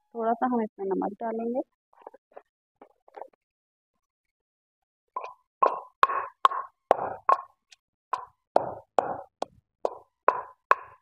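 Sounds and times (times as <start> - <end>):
pestle pounding in stone mortar: 5.2 - 7.6, 8.2 - 11.0.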